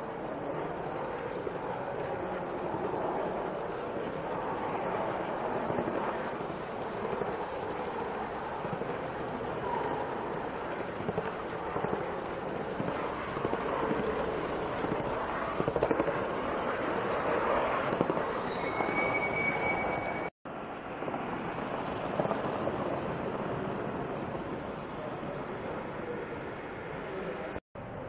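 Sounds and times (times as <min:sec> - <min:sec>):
brief high tone: 0:18.4 - 0:20.3.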